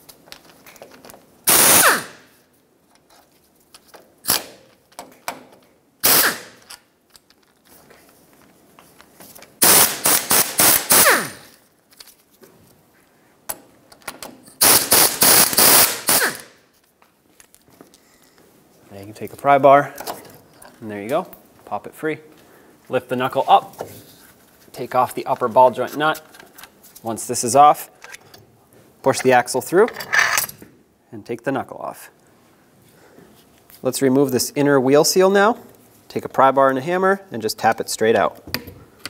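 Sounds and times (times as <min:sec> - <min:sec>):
air wrench hammering: 0:01.5 - 0:02.2, 0:09.6 - 0:11.5, 0:14.6 - 0:16.5.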